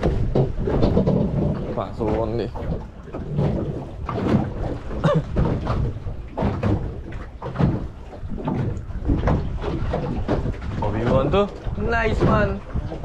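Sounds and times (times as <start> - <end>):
hollow knocks on boat: 0.0 - 13.0.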